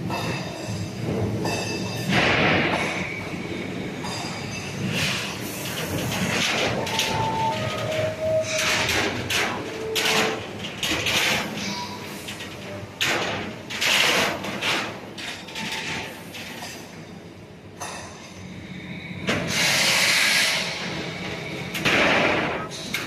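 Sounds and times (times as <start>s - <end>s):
metallic squeals: 3.0s - 10.5s, 11.6s - 12.8s
steel plate clattering over rollers: 4.0s - 17.0s.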